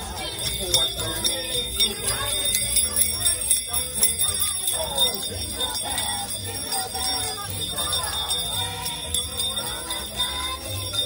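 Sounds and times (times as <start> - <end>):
jingle bells shaken: 0.0 - 11.0
children's voices: 6.1 - 11.0.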